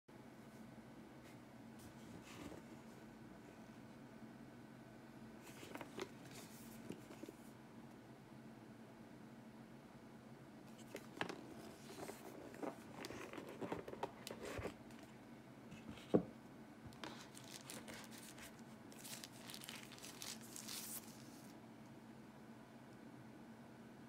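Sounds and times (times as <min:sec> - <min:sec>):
cardboard box rustling: 0:05.5 - 0:07.4, 0:10.7 - 0:15.1, 0:17.0 - 0:21.5
plastic wrapping crinkling: 0:16.9 - 0:21.6.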